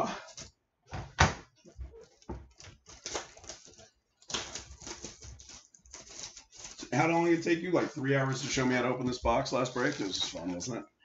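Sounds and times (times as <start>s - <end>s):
plastic wrapper crinkling: 1.9s - 10.8s
scissors snipping plastic: 2.2s - 6.9s.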